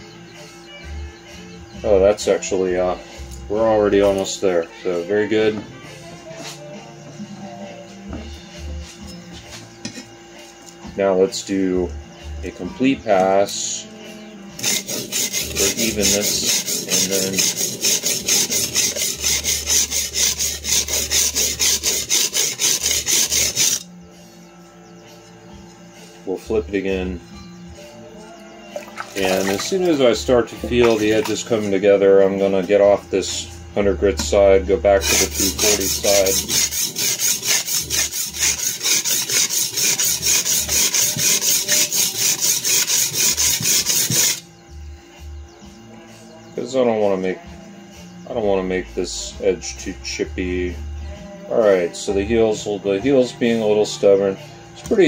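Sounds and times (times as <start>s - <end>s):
blade scraping on sharpening stone: 14.6s - 23.9s, 35.0s - 44.4s.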